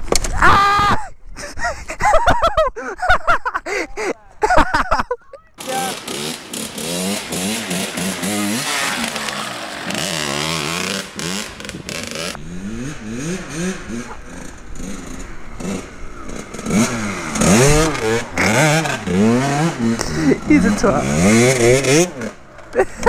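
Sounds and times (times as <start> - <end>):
dirt bike engine revving: 5.6 - 22.5.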